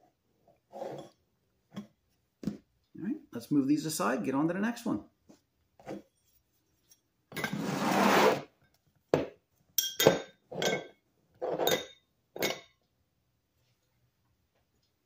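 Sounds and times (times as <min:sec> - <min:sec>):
metal scraping on workbench: 0:00.7 - 0:01.2, 0:05.8 - 0:08.6
metal clinks and knocks: 0:09.8 - 0:11.0.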